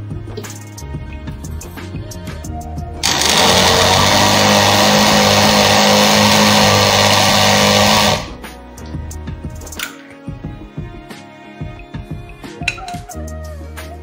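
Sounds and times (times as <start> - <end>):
blender motor whirring: 3.0 - 8.4.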